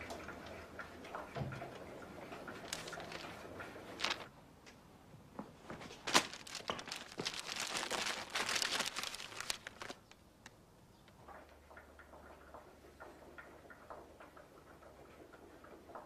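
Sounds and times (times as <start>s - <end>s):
crinkling and rustling: 2.5s - 4.3s, 5.4s - 10.6s.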